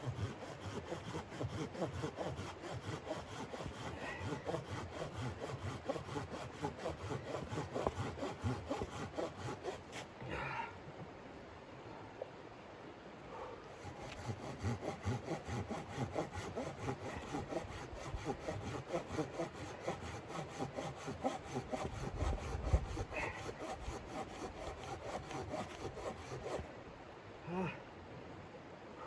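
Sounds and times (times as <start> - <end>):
hand saw cutting wood: 0.0 - 10.1, 13.8 - 26.7.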